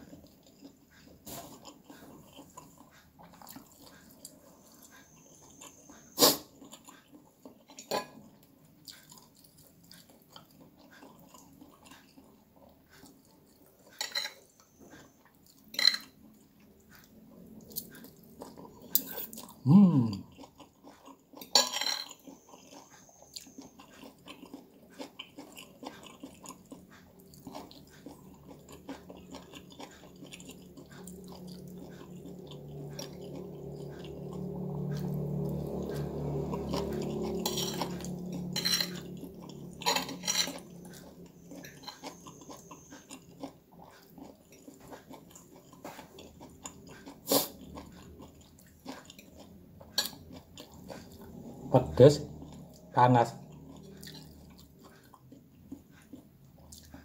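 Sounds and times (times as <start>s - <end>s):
man chewing: 0.0s - 57.0s
cutlery scraping and clinking on plate: 7.8s - 8.2s, 13.9s - 14.5s, 15.7s - 16.2s, 21.4s - 22.3s, 37.4s - 40.8s, 41.6s - 42.2s
low hum: 30.2s - 42.8s.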